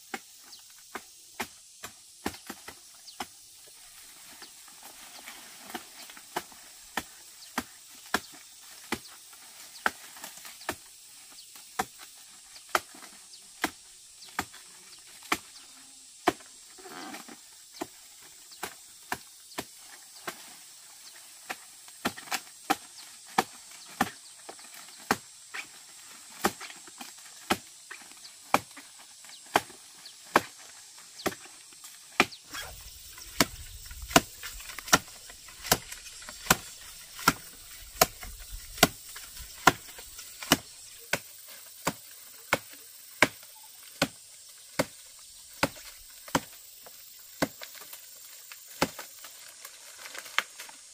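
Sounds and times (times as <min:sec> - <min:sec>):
machete chopping woody stalk: 0:00.9 - 0:03.3, 0:05.6 - 0:09.1, 0:11.7 - 0:15.6, 0:16.2 - 0:16.5, 0:21.4 - 0:24.2, 0:24.9 - 0:25.3, 0:26.3 - 0:45.0, 0:45.6 - 0:46.6, 0:47.4 - 0:47.9, 0:48.7 - 0:49.1.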